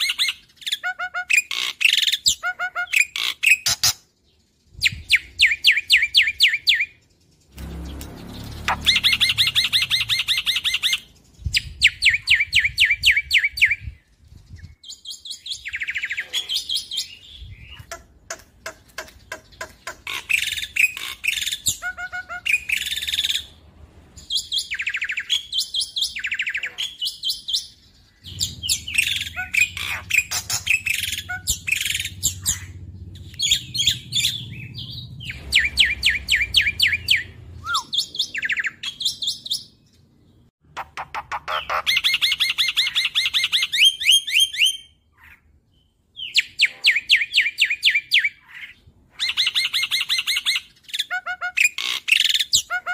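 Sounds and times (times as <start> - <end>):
starling chattering song: 6.7 - 12.4, 17.6 - 23.6, 28.2 - 39.0.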